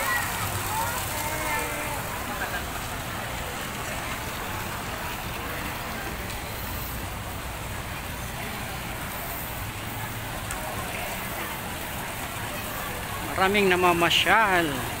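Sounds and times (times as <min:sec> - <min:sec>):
crowd voices: 0:00.0 - 0:15.0.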